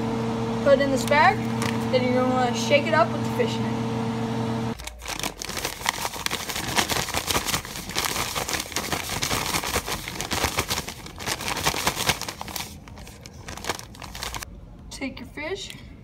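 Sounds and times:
plastic bag crinkling: 4.8 - 14.5.

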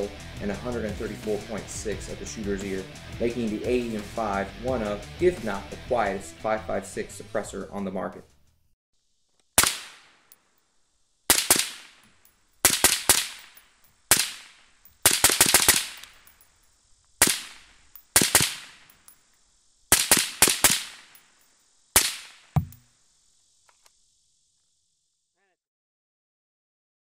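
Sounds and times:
suppressed rifle shots: 9.6 - 10.1, 11.3 - 12.0, 12.6 - 16.1, 17.2 - 18.8, 19.9 - 21.2.

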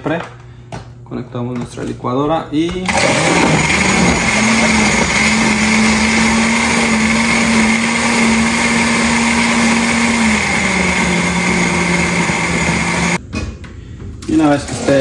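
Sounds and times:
blender running: 2.9 - 13.2.

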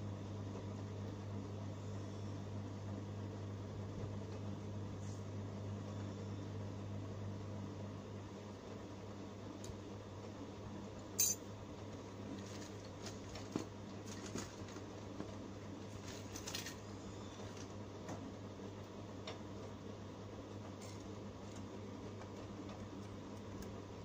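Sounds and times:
light clinks: 11.2 - 11.4.

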